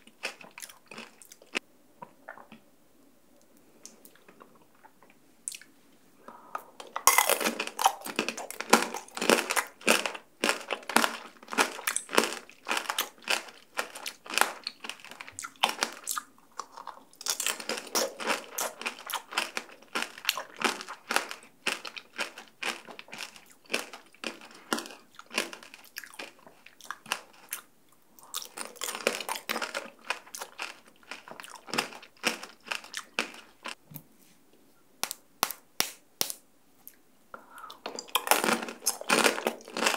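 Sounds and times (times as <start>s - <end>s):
candy shell crunching in chewing: 6.9s - 33.8s, 37.8s - 39.9s.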